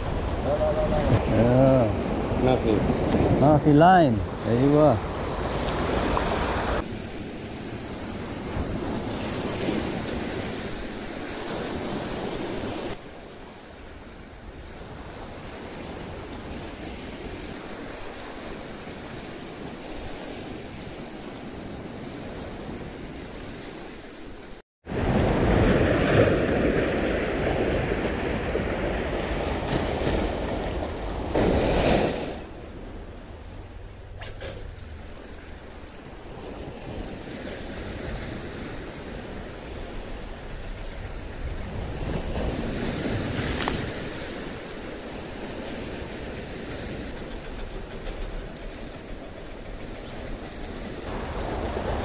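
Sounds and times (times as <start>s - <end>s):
sea waves breaking: 0.0s - 52.0s.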